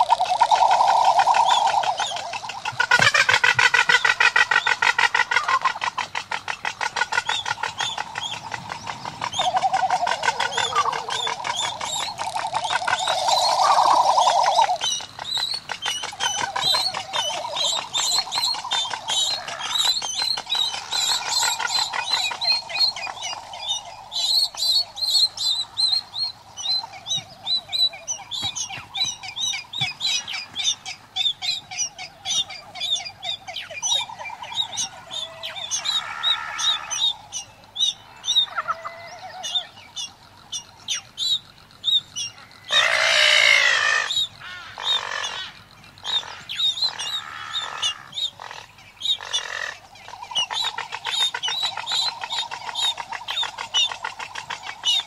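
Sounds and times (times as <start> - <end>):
rapid high bird cheeps: 0.0 - 4.8, 5.4 - 44.3
birds warbling display calls: 0.0 - 55.0
harsh bird calls: 0.0 - 55.0.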